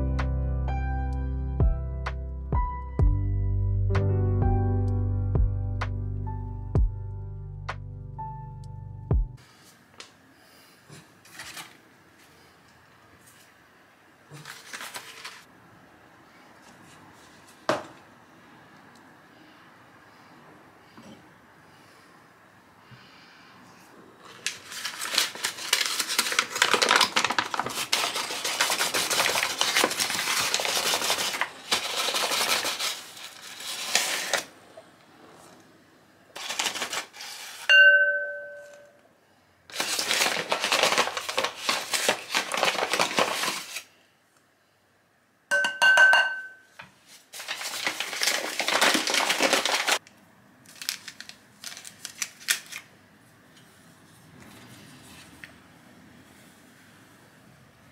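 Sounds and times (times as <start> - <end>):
glass bowl clinking: 37.7 - 39.0, 45.5 - 46.7.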